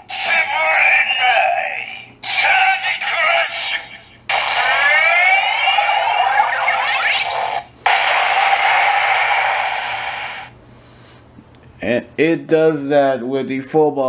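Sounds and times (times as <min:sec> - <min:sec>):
toy voice-like call: 0:00.1 - 0:07.5
hissing electronic effect: 0:03.3 - 0:10.6
rising electronic sweep: 0:04.3 - 0:10.5.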